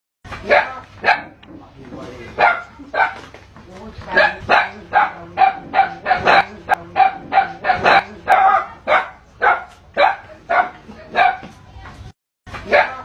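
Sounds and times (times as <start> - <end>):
dog barking rapidly: 0.4 - 1.4, 2.3 - 3.3, 4.1 - 11.5, 12.7 - 13.0.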